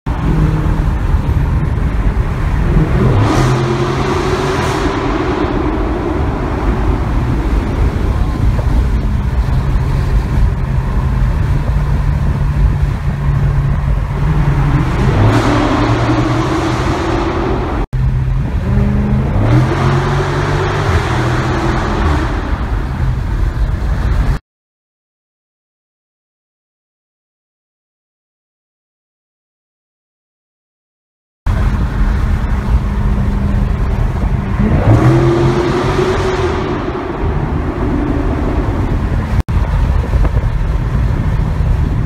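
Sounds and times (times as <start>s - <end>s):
car engine accelerating: 0.1s - 24.4s, 31.5s - 42.0s
loud exhaust note: 2.5s - 11.0s, 31.5s - 41.2s.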